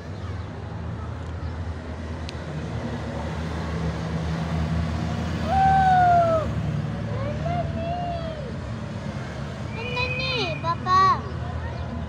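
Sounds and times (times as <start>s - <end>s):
motor vehicles droning: 0.0s - 12.0s.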